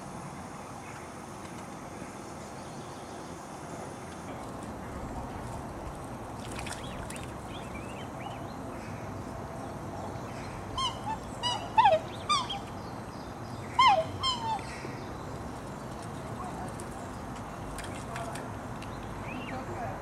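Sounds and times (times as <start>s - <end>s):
cygnets peeping: 10.1s - 19.7s.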